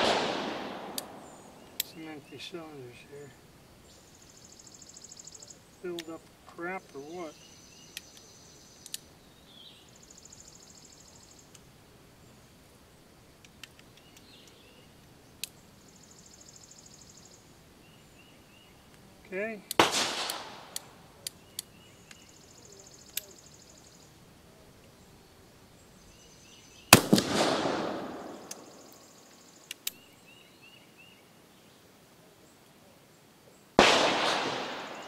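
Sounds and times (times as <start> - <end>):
loud gunshot with echo: 0.0 - 1.4, 19.8 - 20.7, 26.9 - 28.5, 33.8 - 35.0
insects buzzing: 0.0 - 35.0
light metallic clicks: 7.9 - 9.1.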